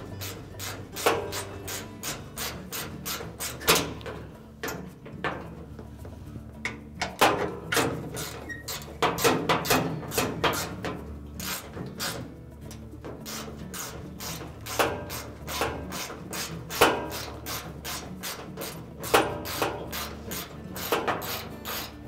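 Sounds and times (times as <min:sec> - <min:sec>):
socket ratchet clicking: 0:11.4 - 0:22.0.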